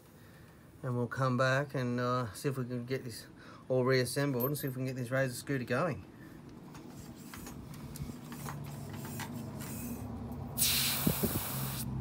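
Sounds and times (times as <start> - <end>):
loud hiss: 10.6 - 11.9.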